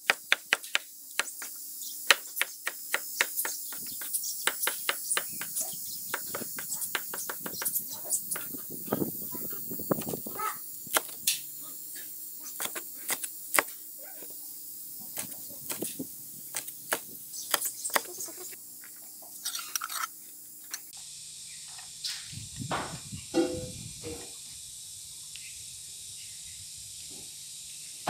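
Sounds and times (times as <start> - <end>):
cleaver chopping on wooden board: 0.0 - 8.5, 10.9 - 11.2, 12.6 - 13.8, 16.5 - 18.2.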